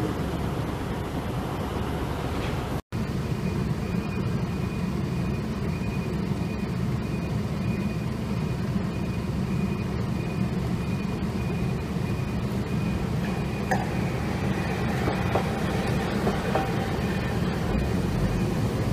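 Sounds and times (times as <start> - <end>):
distant tram approaching: 0.0 - 6.4, 11.3 - 18.9
low rumble of street traffic: 0.0 - 18.9.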